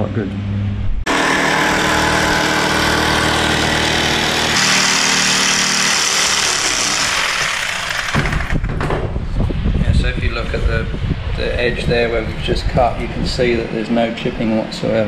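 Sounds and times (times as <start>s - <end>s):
jigsaw cutting: 1.1s - 8.7s.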